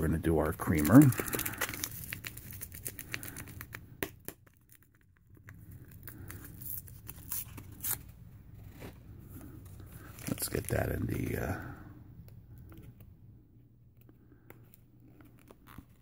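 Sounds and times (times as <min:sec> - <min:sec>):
plastic packets crinkling: 0:00.3 - 0:08.0, 0:09.7 - 0:11.6
packet tearing open: 0:00.6 - 0:08.1.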